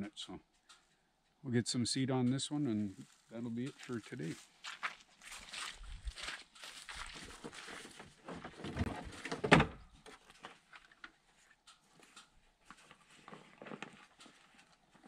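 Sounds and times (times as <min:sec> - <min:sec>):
faint ticks: 0:00.5 - 0:01.1
rustling and handling noise: 0:02.9 - 0:15.0.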